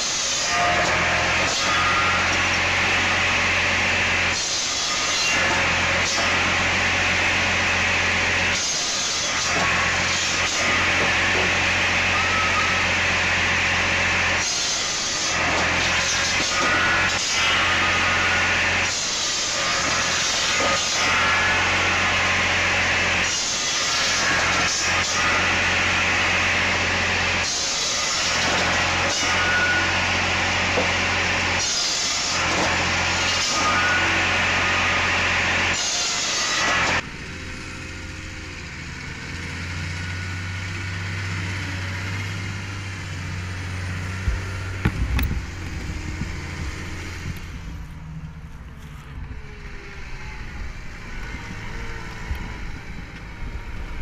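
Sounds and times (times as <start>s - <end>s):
saw cutting wood: 0.0s - 47.7s
machine hum: 37.0s - 54.0s.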